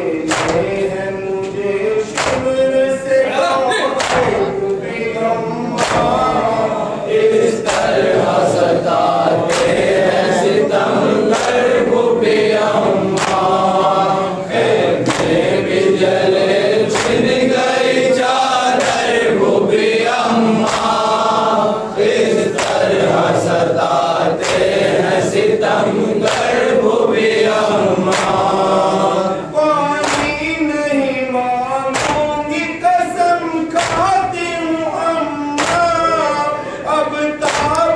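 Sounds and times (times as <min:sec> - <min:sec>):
men chanting in unison: 0:00.0 - 0:37.9
hand slaps on chests: 0:00.2 - 0:00.8, 0:02.1 - 0:02.6, 0:04.0 - 0:04.8, 0:05.8 - 0:06.4, 0:07.6 - 0:08.2, 0:09.4 - 0:10.6, 0:11.3 - 0:11.9, 0:13.1 - 0:13.7, 0:14.9 - 0:15.8, 0:16.9 - 0:17.5, 0:18.7 - 0:21.3, 0:22.4 - 0:23.2, 0:24.3 - 0:25.0, 0:26.2 - 0:26.8, 0:28.0 - 0:28.8, 0:30.0 - 0:30.7, 0:31.9 - 0:32.6, 0:33.8 - 0:34.4, 0:35.6 - 0:36.3, 0:37.4 - 0:37.9.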